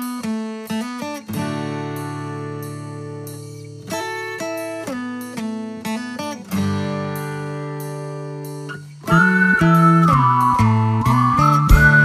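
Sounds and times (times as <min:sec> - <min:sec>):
plucked guitar: 0:00.0 - 0:12.0.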